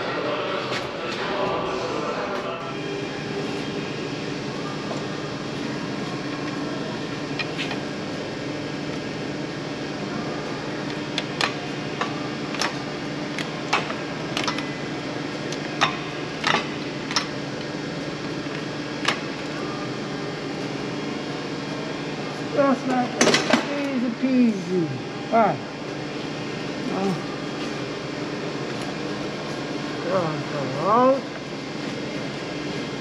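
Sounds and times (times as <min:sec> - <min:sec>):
steady background hum: 0:00.0 - 0:33.0.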